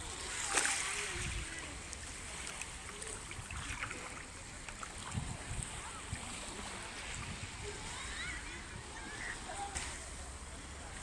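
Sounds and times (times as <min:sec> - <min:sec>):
water lapping on pebbles: 0:00.0 - 0:08.2
wind rumbling on microphone: 0:00.0 - 0:09.8.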